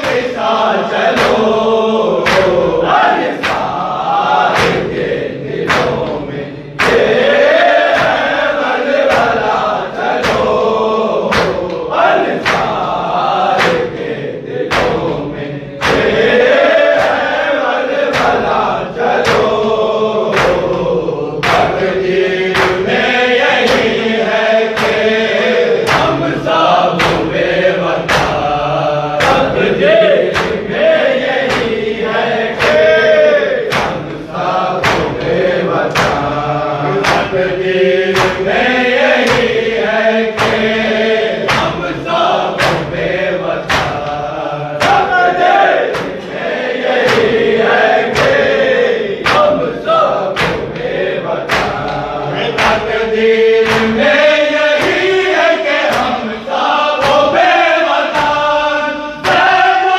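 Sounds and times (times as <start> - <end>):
men chanting a lament: 0.0 - 59.9
open-palm chest slaps: 1.2 - 1.5, 2.2 - 3.8, 4.4 - 8.4, 9.0 - 10.6, 11.3 - 17.3, 18.1 - 19.6, 20.3 - 20.8, 21.4 - 21.8, 22.5 - 24.0, 25.8 - 27.4, 28.0 - 28.5, 29.2 - 29.7, 30.3 - 30.8, 31.4 - 31.8, 32.6 - 33.0, 33.6 - 34.2, 34.8 - 36.4, 37.0 - 37.4, 38.1 - 39.6, 40.4 - 40.8, 41.4 - 41.8, 42.6 - 43.0, 43.6 - 44.2, 45.8 - 46.2, 47.0 - 47.4, 48.0 - 48.6, 49.2 - 49.6, 50.3 - 53.0, 53.6 - 54.0, 55.8 - 56.2.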